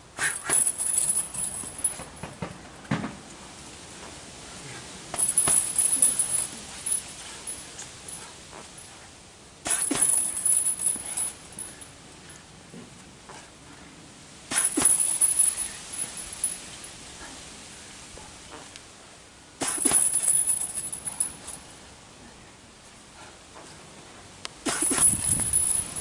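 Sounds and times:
chain jingling: 0:00.2 - 0:02.2, 0:05.2 - 0:09.0, 0:09.7 - 0:12.0, 0:14.5 - 0:16.9, 0:19.6 - 0:21.7, 0:24.7 - 0:26.0
punches thudding on heavy bag: 0:09.6 - 0:11.3, 0:19.6 - 0:20.6.

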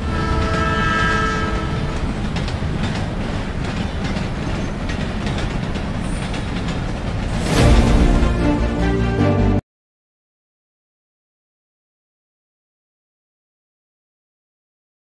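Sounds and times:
train horn: 0:00.0 - 0:02.2
train rumble and wheel clatter: 0:00.0 - 0:09.6.

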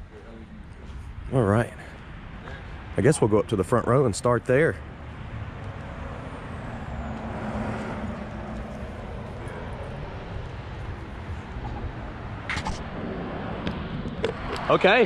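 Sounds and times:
vehicle rumbling by: 0:04.7 - 0:15.0.

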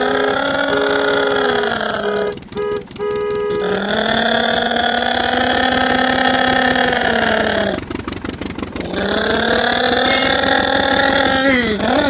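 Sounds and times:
toy truck engine buzzing: 0:00.0 - 0:08.0, 0:08.8 - 0:12.0.

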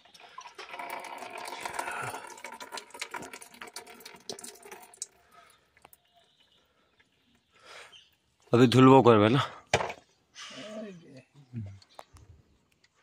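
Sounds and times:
liquid pouring and splashing: 0:00.0 - 0:06.0
drips and clicks: 0:00.0 - 0:07.5.

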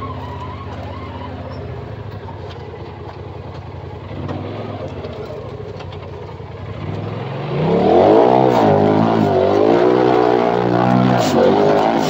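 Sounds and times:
engine revving hard: 0:06.7 - 0:12.0.

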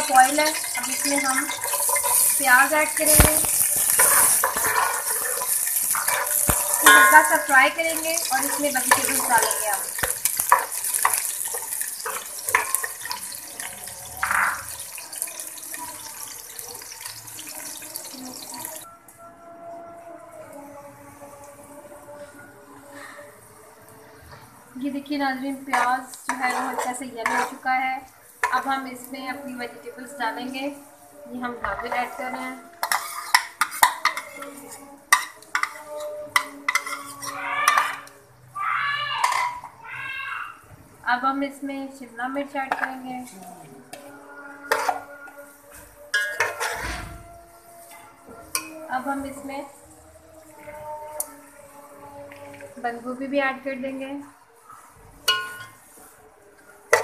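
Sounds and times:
metal ladle scraping steel pot: 0:00.0 - 0:13.6, 0:25.7 - 0:27.8, 0:31.7 - 0:38.2, 0:39.2 - 0:39.8, 0:42.7 - 0:49.4
onions sizzling in oil: 0:00.0 - 0:18.9, 0:24.6 - 0:57.0.

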